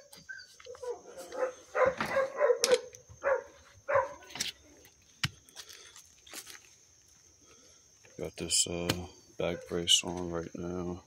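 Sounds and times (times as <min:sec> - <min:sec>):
dog barking: 0:00.8 - 0:04.3, 0:09.5 - 0:09.8.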